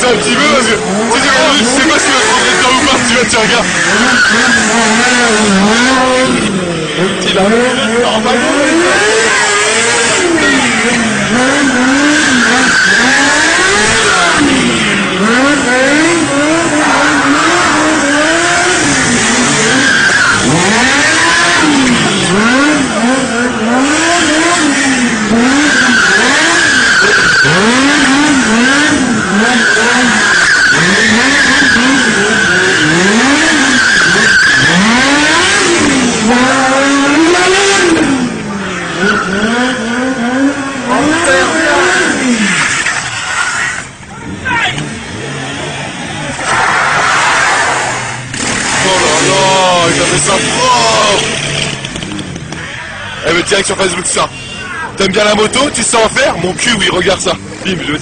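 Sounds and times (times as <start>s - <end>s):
high-revving engine: 0.0s - 58.0s
tyre squeal: 1.2s - 6.1s, 9.2s - 14.6s, 16.3s - 22.4s, 25.3s - 37.1s, 40.9s - 44.0s.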